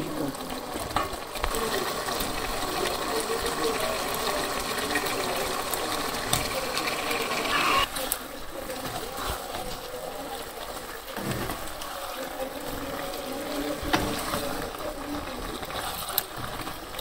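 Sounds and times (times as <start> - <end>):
food sizzling in oil: 0.0 - 8.4.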